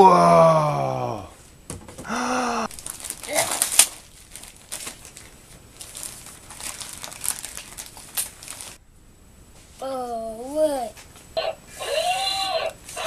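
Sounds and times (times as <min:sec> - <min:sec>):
wrapping paper crinkling: 0:02.7 - 0:08.8.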